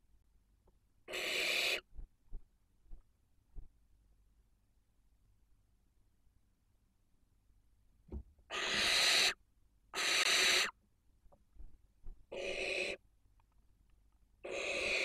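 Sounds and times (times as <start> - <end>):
barn owls screeching: 1.1 - 1.9, 8.5 - 10.8, 12.3 - 13.0, 14.4 - 15.0.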